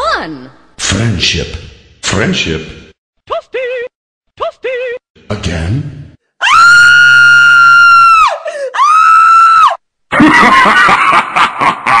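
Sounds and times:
woman screaming: 6.4 - 9.8.

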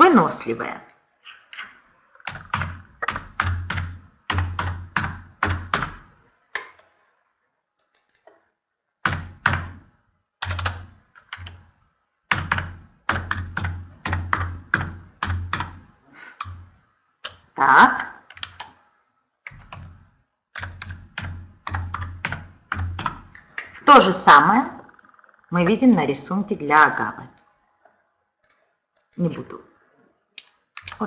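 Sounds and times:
typing on keyboard: 0.8 - 6.9, 10.4 - 11.6, 12.3 - 16.6, 18.2 - 18.8, 19.5 - 23.7, 30.4 - 31.0.

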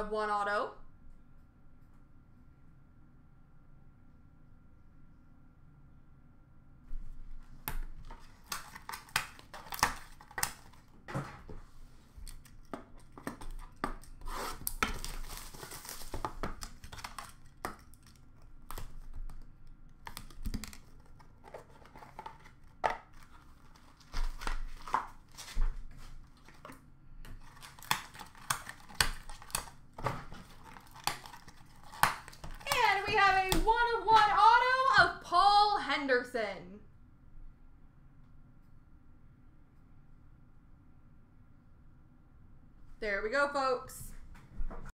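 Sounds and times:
wrapper and cardboard tearing: 7.8 - 34.4
plastic card cases clicking: 27.3 - 32.7.

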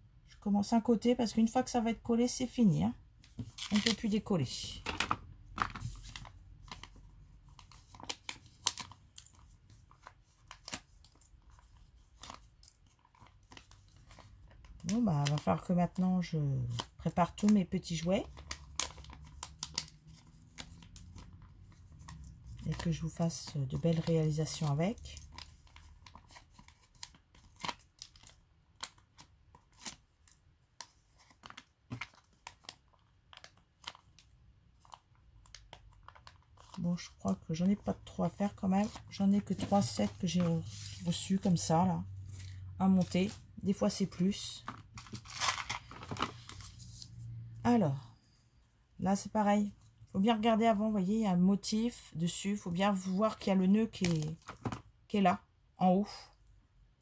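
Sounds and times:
label sheet rustling and crinkling: 3.2 - 47.3, 53.0 - 54.9
plastic packaging crinkling: 31.0 - 37.3, 44.6 - 47.1, 54.0 - 54.8
paper sheets rustling: 38.7 - 41.5.

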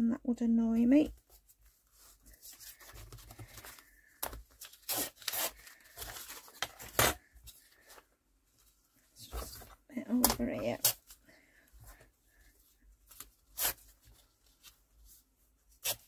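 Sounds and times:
paper rustling and crackling: 1.2 - 11.2.

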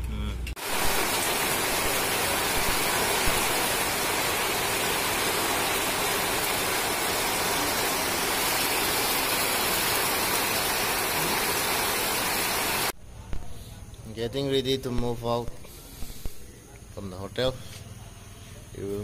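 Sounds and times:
heavy rain on a metal roof: 0.6 - 13.0.

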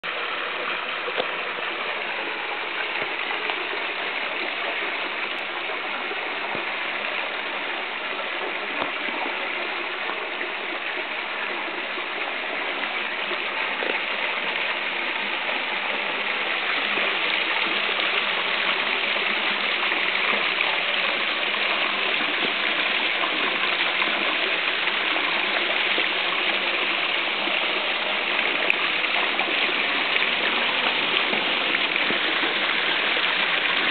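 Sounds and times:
flowing river water: 0.0 - 33.9.

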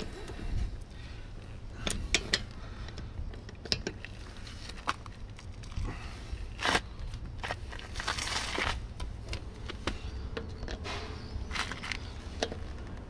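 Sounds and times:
socket wrench clicking and scraping: 1.8 - 4.2.

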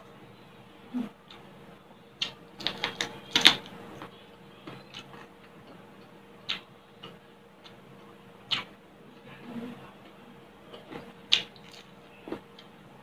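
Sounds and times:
crunchy chewing: 10.7 - 12.7.

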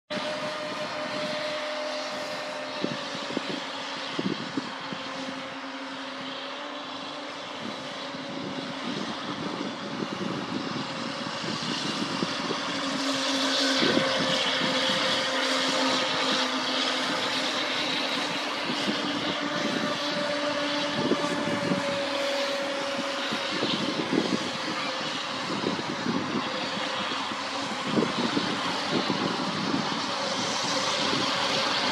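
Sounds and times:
model speedboat motor whine: 0.1 - 31.9.

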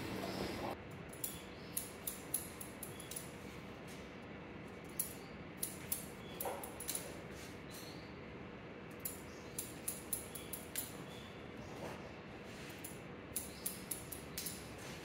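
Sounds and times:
scissors snipping hair: 1.0 - 3.4, 4.9 - 7.2, 8.9 - 11.0, 12.7 - 14.8.

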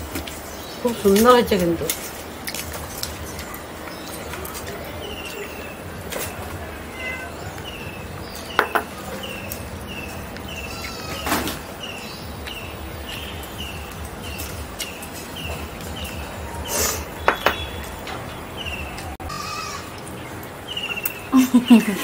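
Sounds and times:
sharp knocks: 8.6 - 8.9, 17.2 - 17.8.

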